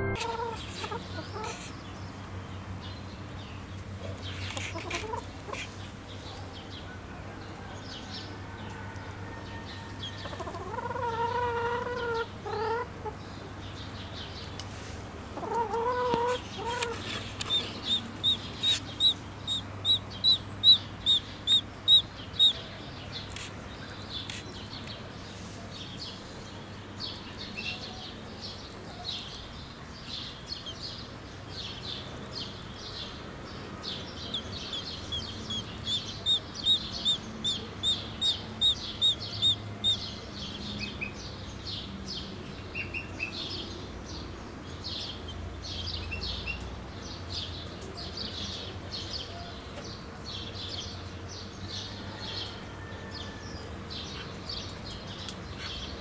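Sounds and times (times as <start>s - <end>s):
poultry clucking: 0.0s - 1.7s, 4.0s - 5.8s, 10.0s - 13.2s, 15.4s - 22.6s, 34.2s - 40.0s
chicks peeping: 0.0s - 1.9s, 4.0s - 5.9s, 9.9s - 14.8s, 15.4s - 23.5s, 32.0s - 41.3s.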